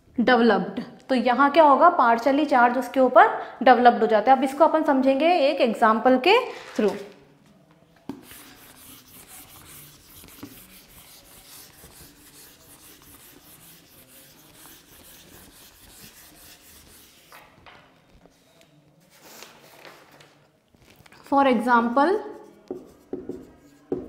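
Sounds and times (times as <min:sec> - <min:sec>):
eraser rubbing on whiteboard: 0:08.1 - 0:18.5, 0:22.2 - 0:24.0.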